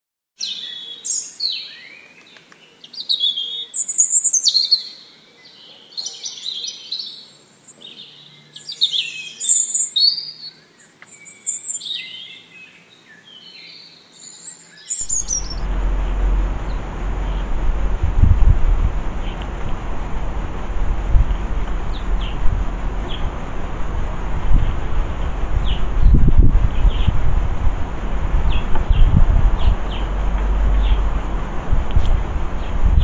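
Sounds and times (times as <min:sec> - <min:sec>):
songbird chirping: 0:00.4 - 0:33.0
wind buffeting microphone: 0:15.0 - 0:33.0.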